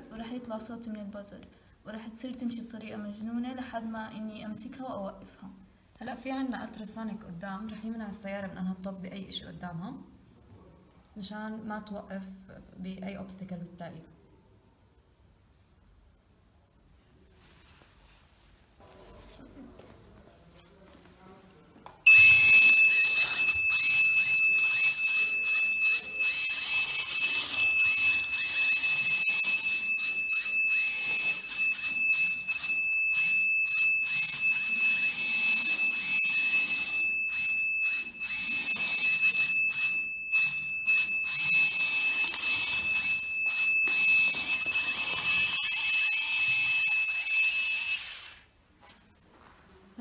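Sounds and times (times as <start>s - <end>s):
gear motors running: 22.1s - 48.4s
piezo alarm buzzer tone: 22.1s - 48.5s.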